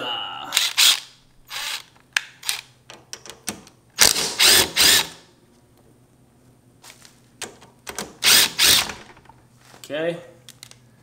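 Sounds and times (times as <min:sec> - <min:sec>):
cordless ratchet bursts: 0:04.0 - 0:05.2, 0:08.2 - 0:09.0.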